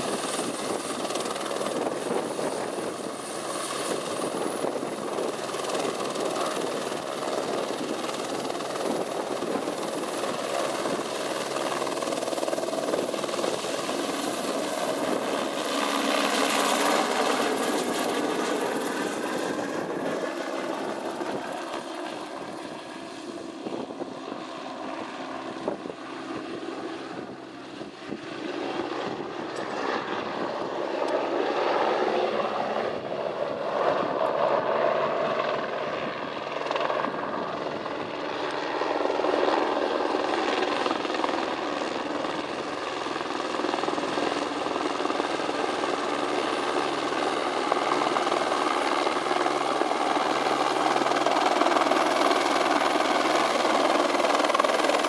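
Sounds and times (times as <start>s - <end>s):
helicopter rotor and engine: 0.0s - 55.0s.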